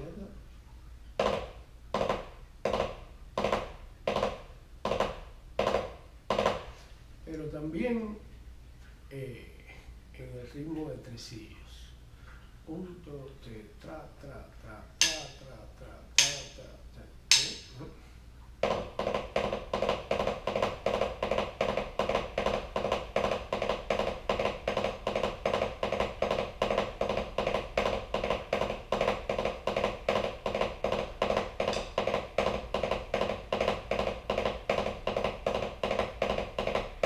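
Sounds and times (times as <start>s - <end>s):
drumsticks on practice pad: 15.0s - 17.9s, 18.6s - 37.0s.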